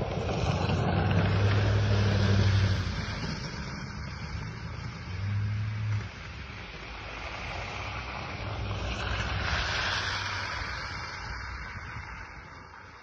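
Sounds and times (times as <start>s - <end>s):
car passing on wet street: 0.0s - 13.0s.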